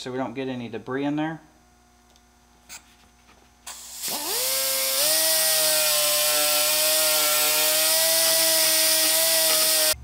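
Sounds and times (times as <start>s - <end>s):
grinder hiss on plastic: 3.7s - 10.0s
die grinder whining: 3.9s - 10.0s.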